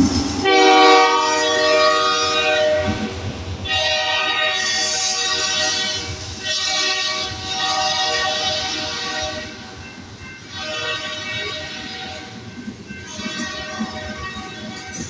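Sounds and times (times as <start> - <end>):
freight cars rumbling: 0.0 - 3.7
locomotive horn blasts: 0.4 - 9.6, 10.5 - 12.4, 13.1 - 15.0.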